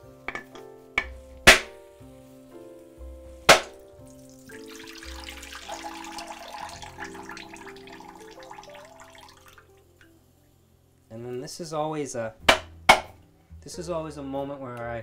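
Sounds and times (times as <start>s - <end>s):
water splashing into a bowl: 3.5s - 10.2s
hammer striking coconut: 12.5s - 13.1s.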